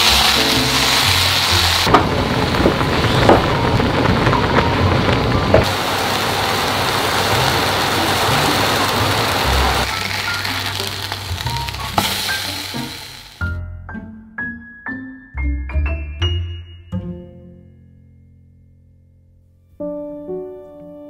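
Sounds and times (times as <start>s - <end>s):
food sizzling in frying pans: 0.0s - 13.6s.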